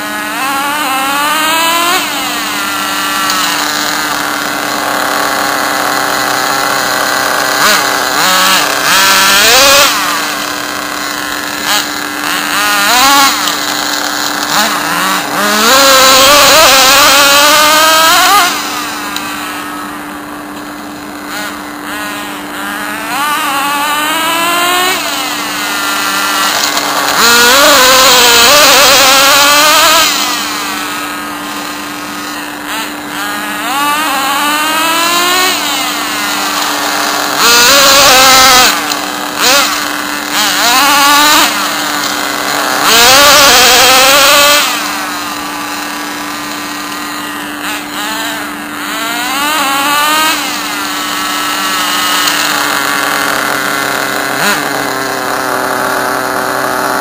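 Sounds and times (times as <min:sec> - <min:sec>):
rc car engine revving: 0:00.0 - 0:57.0.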